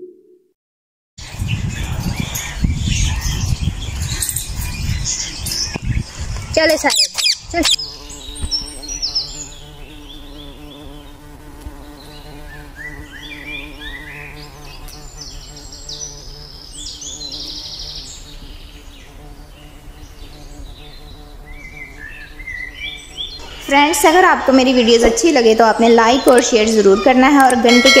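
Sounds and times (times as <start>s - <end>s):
birds chirping in trills: 1.2s - 28.0s.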